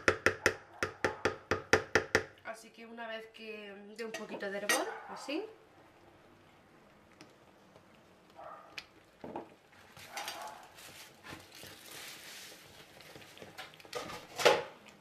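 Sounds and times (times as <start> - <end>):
thick sauce simmering and plopping: 5.8 - 15.0.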